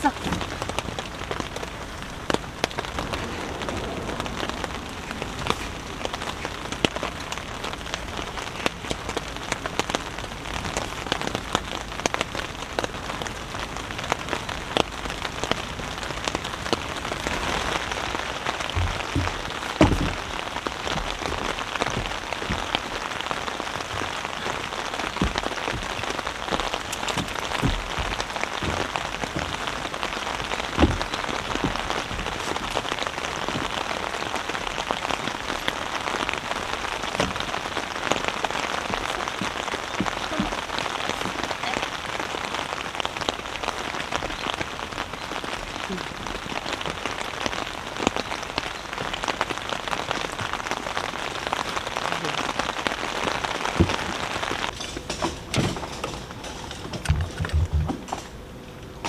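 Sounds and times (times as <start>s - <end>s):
heavy rain on tent fabric: 0.0s - 59.0s
dull thumps: 18.5s - 34.2s.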